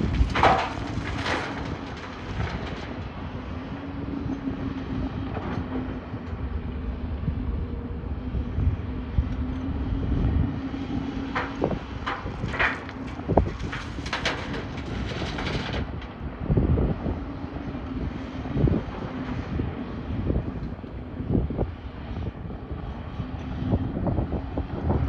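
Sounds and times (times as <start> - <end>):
clatter of gravel and stones: 0.0 - 3.6, 11.1 - 16.2
excavator diesel engine humming: 0.0 - 25.0.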